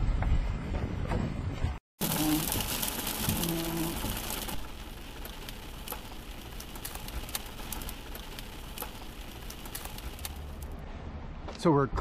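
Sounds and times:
rain and hail on car roof: 2.0 - 10.8.

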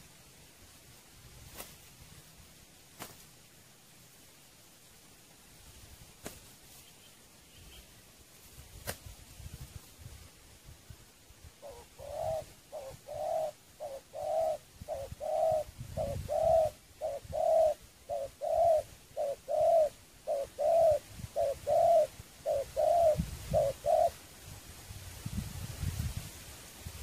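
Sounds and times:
dove cooing: 11.6 - 24.2.

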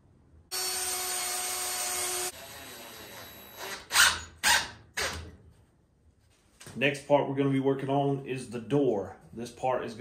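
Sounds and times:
cordless drill whining: 0.5 - 5.2
drill bursts driving screw: 0.6 - 5.2.

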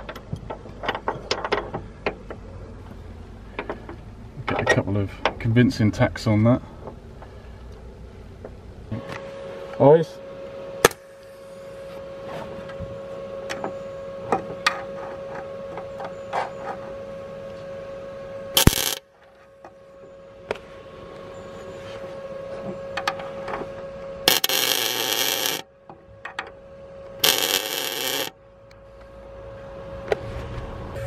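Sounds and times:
steady hum: 0.0 - 31.0
welding arc crackling: 18.6 - 19.0, 24.3 - 25.6, 27.2 - 28.3.

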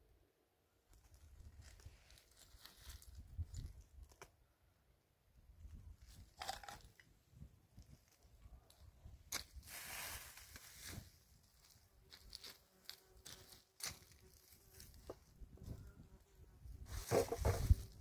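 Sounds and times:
crunching and rustling: 0.9 - 4.3, 16.9 - 18.0.

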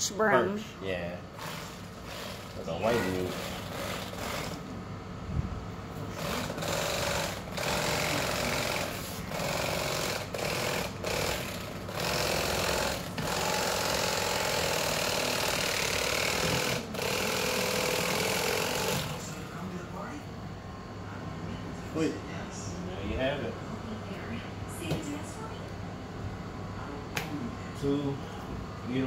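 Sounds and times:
electric knife buzzing: 1.3 - 4.7, 6.1 - 19.4.

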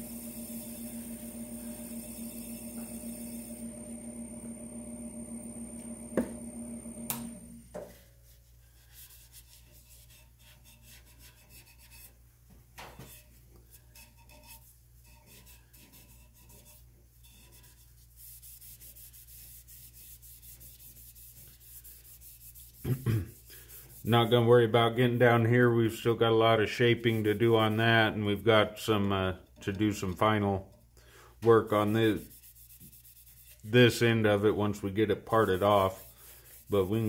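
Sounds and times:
machine hum with whine: 0.0 - 7.8
cloth rubbing on wood: 14.5 - 24.4, 31.5 - 37.0.

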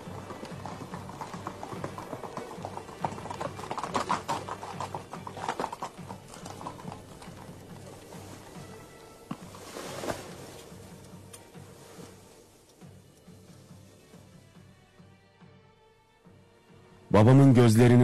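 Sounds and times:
horse hooves clip-clopping on paving: 0.0 - 13.8
background music: 0.0 - 18.0.

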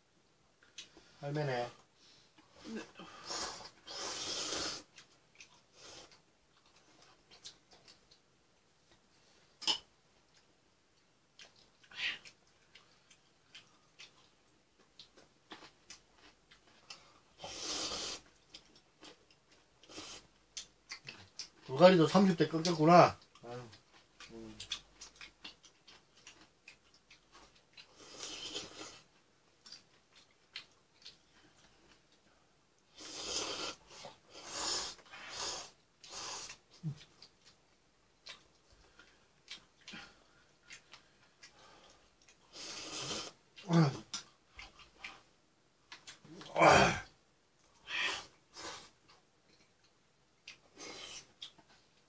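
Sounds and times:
airy mouth sounds eating noodles: 2.6 - 6.2, 15.5 - 19.2, 23.7 - 29.1, 32.9 - 37.6, 39.0 - 45.3
slurping noodles: 3.2 - 4.9
wet chewing clicks: 4.7 - 8.3, 18.1 - 21.7, 22.6 - 32.2, 34.8 - 45.2.

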